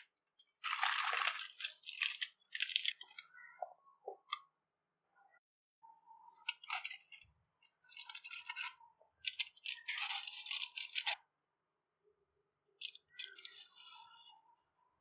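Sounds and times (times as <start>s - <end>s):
aluminium foil crinkling: 0.6s - 3.0s.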